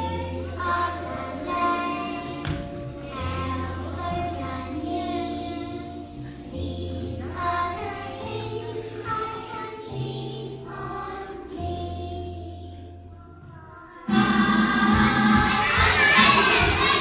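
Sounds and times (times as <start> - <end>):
children singing together: 0.0 - 17.0.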